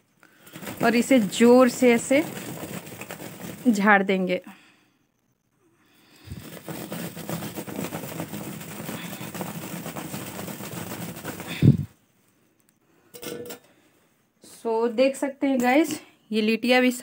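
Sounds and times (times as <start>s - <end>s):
dough balls rattling in cloth: 0.2s - 4.4s, 6.2s - 12.0s.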